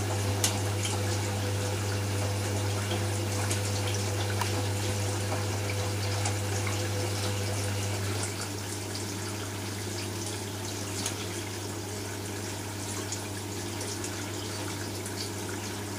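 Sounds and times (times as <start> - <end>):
drain pump humming: 0.0 - 15.9
washing machine drum motor: 0.0 - 15.9
water sloshing and gurgling: 0.0 - 15.9.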